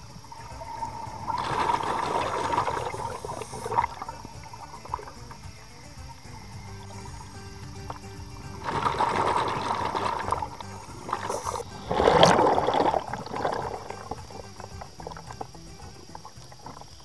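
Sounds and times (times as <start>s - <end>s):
underwater exhaled bubbles rushing: 0.0s - 17.0s.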